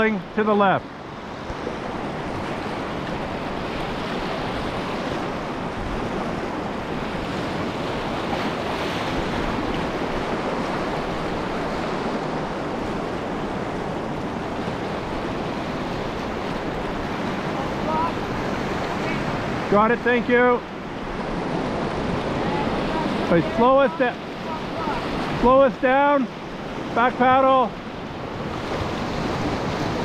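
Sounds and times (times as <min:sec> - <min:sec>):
whitewater rapids rushing: 0:00.0 - 0:30.0.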